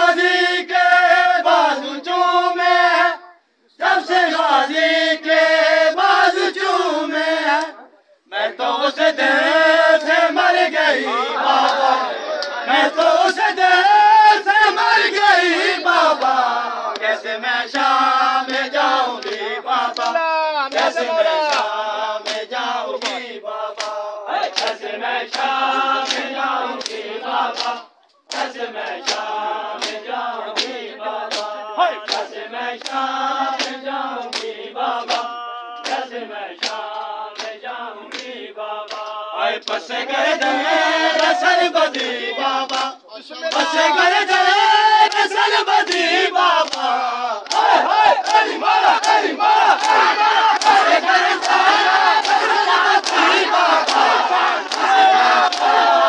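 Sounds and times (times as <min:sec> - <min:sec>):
men chanting in unison: 0:00.0 - 0:56.0
hands slapping bare chests: 0:16.1 - 0:20.9, 0:21.5 - 0:43.7, 0:45.0 - 0:56.0.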